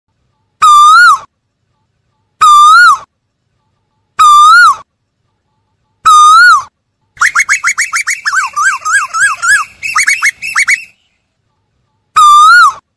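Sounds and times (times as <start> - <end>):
bird whistled calls: 7.2 - 11.1.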